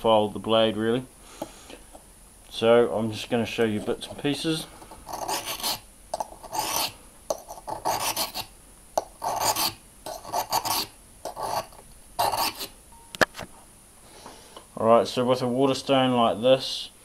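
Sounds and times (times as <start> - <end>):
knife blade scraping on whetstone: 5.0 - 12.7.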